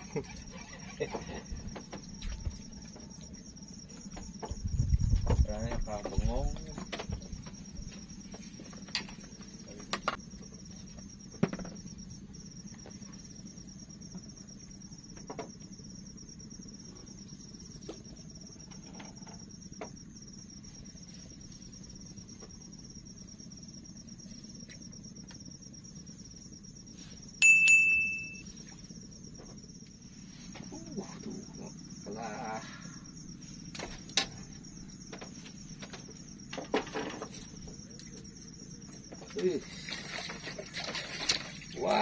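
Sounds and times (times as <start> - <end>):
crickets and insects chirping: 0.0 - 42.0
loud high-pitched beep: 27.4 - 28.5.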